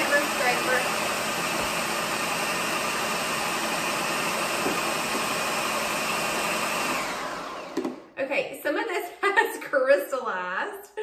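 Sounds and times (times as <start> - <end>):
food processor motor running: 0.0 - 8.1.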